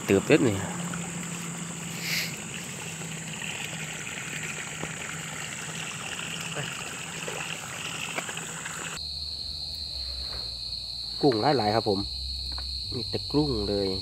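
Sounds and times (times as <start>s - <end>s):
water trickling through a channel: 0.0s - 9.0s.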